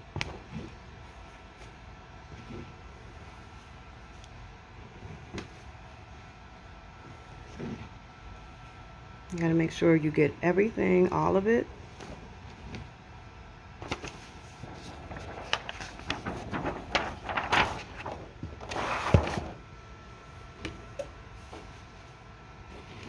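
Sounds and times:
plastic film rustling: 0:13.8 - 0:19.6.

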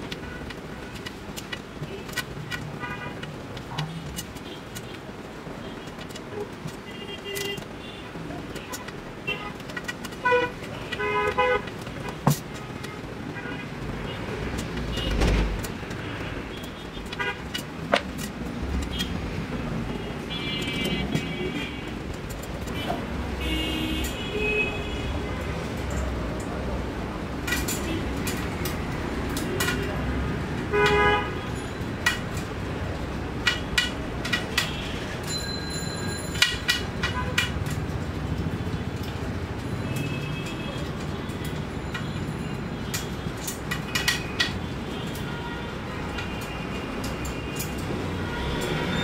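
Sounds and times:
traffic rumble: 0:00.0 - 0:49.0
metallic clicks and clinks: 0:33.4 - 0:37.9.

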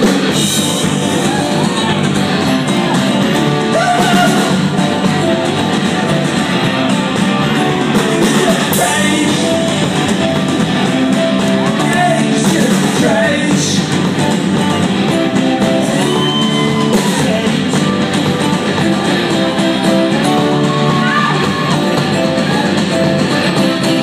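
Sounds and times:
live rock band playing: 0:00.0 - 0:24.0
person singing: 0:02.7 - 0:05.2, 0:07.9 - 0:14.2, 0:15.0 - 0:22.8.

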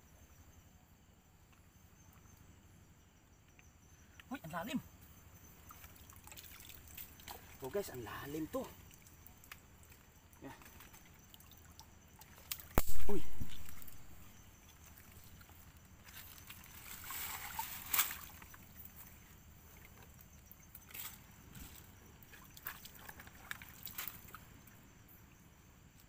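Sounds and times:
mud and water sloshing: 0:05.2 - 0:24.9.

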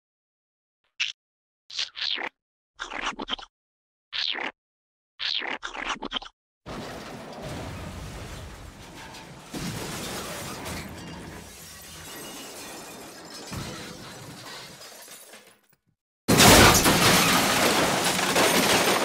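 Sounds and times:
glass shattering crash: 0:06.7 - 0:15.6, 0:16.3 - 0:19.0.

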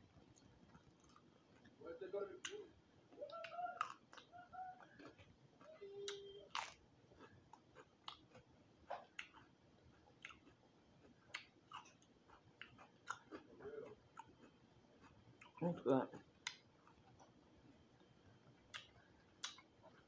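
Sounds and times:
chewing crispy food: 0:00.0 - 0:20.0
wet mouth clicks: 0:18.7 - 0:19.6.

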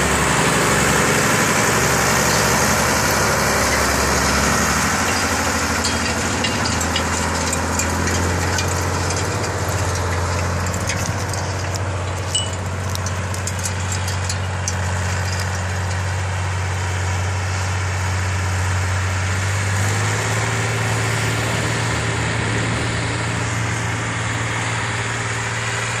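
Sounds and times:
tractor diesel engine running: 0:00.0 - 0:26.0.

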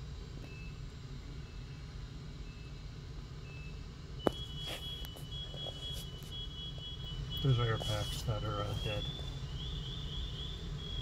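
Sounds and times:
steady high double alarm tone: 0:00.5 - 0:11.0
short high alarm beeps: 0:02.4 - 0:11.0.

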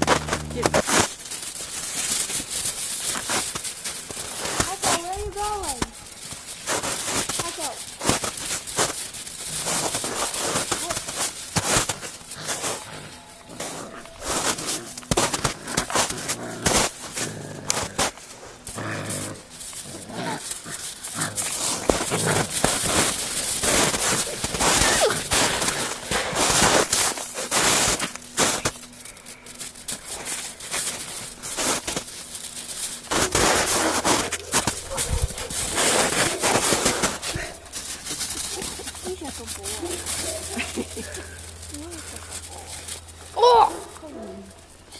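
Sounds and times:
puppies growling and yipping: 0:00.0 - 0:01.1, 0:08.1 - 0:27.6, 0:28.2 - 0:44.6
snow crunching: 0:00.0 - 0:44.9.

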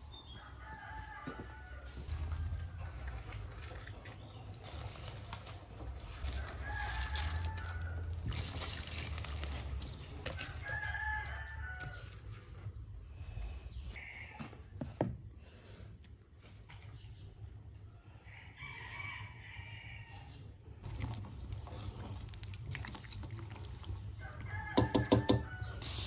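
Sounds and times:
rooster crowing: 0:06.2 - 0:08.6, 0:10.3 - 0:12.1, 0:24.2 - 0:26.0
water splashing in a bowl: 0:20.8 - 0:25.4.

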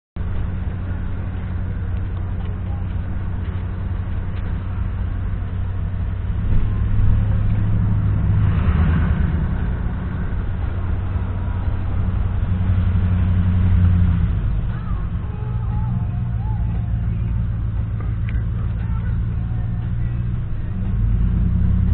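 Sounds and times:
car driving on wet road: 0:00.2 - 0:21.9
truck passing: 0:00.2 - 0:21.9.

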